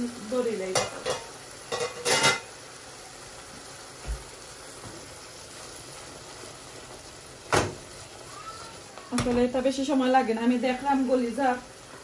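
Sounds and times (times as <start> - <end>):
pot simmering hiss: 0.0 - 12.0
steel cookware clanking: 0.6 - 2.5.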